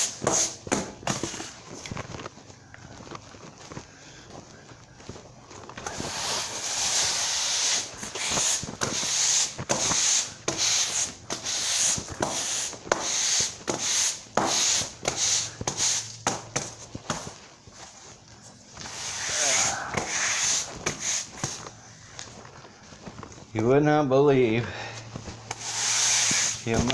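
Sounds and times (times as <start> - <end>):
push broom sweeping concrete: 0.0 - 1.6, 5.8 - 17.9, 18.7 - 21.7, 25.5 - 26.9.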